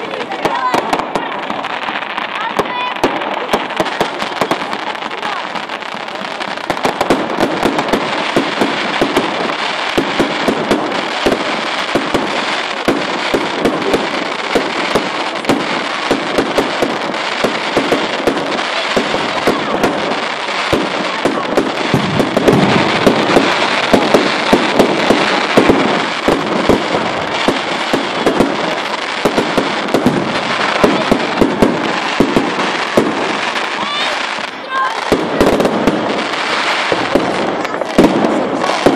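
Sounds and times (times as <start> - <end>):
fireworks crackling: 0.0 - 38.9
fireworks shell bursts: 20.7 - 28.7.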